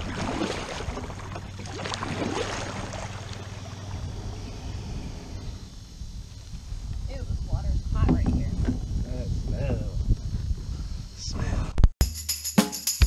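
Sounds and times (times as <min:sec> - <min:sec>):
kayak running into grass: 0:00.0 - 0:04.0
paddle strokes splashing water: 0:00.0 - 0:04.4.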